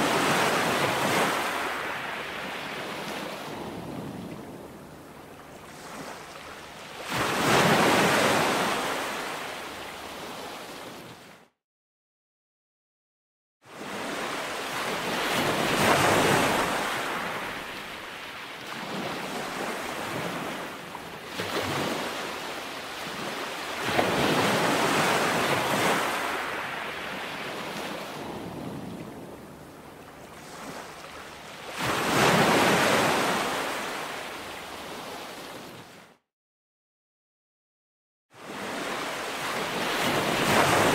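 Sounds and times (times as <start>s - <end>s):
ocean surf breaking: 0.0s - 4.7s, 13.8s - 20.7s, 21.4s - 29.6s, 30.3s - 34.3s, 38.5s - 40.9s.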